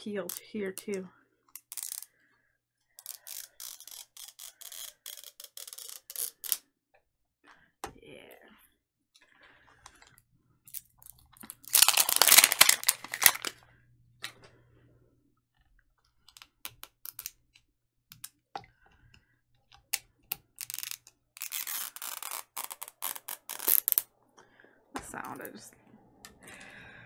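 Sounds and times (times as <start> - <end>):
foil wrapper crinkling and tearing: 11.4 - 13.6, 20.8 - 24.0.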